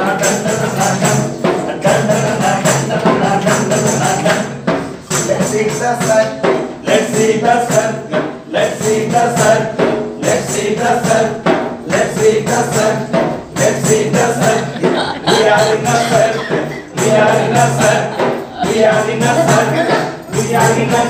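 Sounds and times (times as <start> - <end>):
dance music with steady beat: 12.0 - 21.0.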